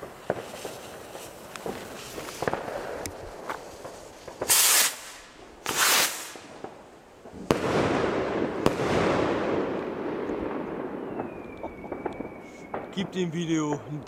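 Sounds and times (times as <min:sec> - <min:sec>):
firework bang: 0:00.0 - 0:06.8, 0:07.4 - 0:13.0
firework rocket hissing: 0:00.0 - 0:06.8
firework crack: 0:00.0 - 0:14.0.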